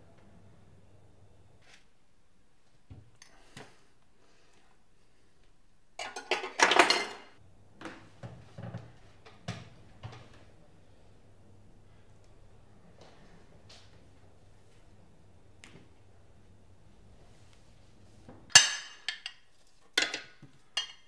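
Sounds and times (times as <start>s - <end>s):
dishes and metal tray clattering: 6.0s - 7.3s, 20.0s - 21.0s.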